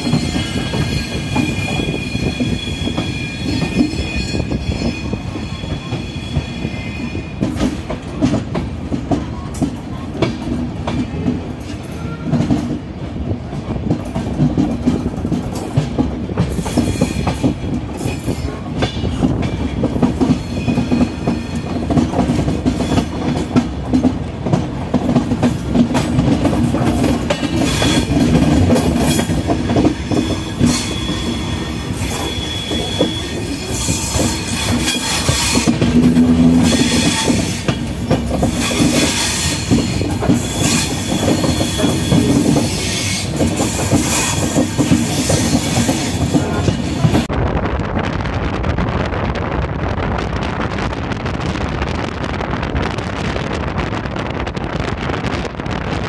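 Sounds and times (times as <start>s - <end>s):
high squeal tones: 0.0s - 7.4s, 30.0s - 37.8s
train rumble: 0.0s - 56.0s.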